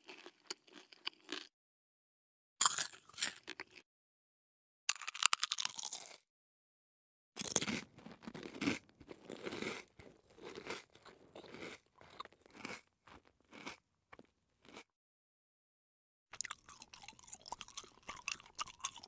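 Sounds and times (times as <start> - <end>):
chewing potato chips: 0.0 - 1.5, 2.6 - 3.8, 4.9 - 6.2, 7.4 - 14.9, 16.4 - 19.0.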